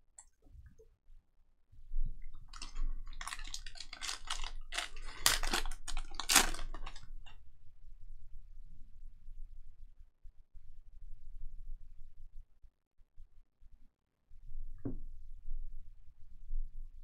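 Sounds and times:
foil wrapper crinkling and tearing: 0:02.5 - 0:07.3.

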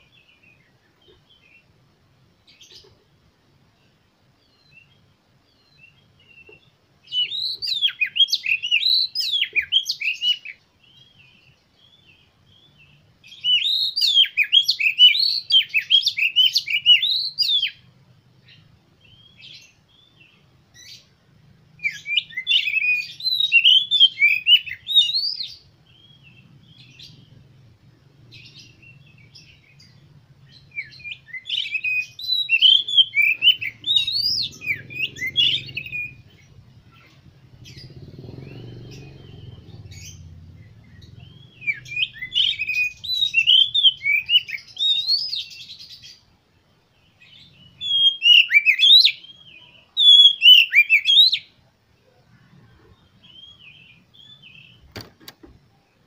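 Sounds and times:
bird singing whistled phrases: 0:07.1 - 0:10.6, 0:13.3 - 0:17.8, 0:21.8 - 0:27.1, 0:28.9 - 0:36.3, 0:41.0 - 0:46.1, 0:47.3 - 0:51.5.

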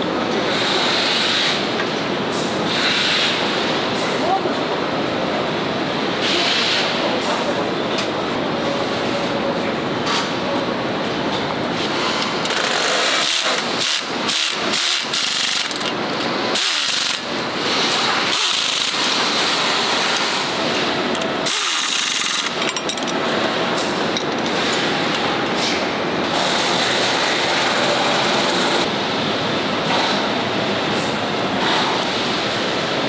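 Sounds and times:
assembly line noise: 0:11.8 - 0:28.9
pneumatic wrench bursts: 0:12.5 - 0:15.9, 0:16.5 - 0:17.2, 0:17.8 - 0:20.3, 0:21.4 - 0:22.8.

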